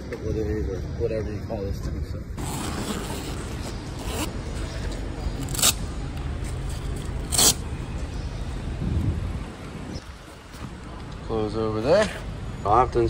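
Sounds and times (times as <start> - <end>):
steady low rumble: 3.7 - 11.3.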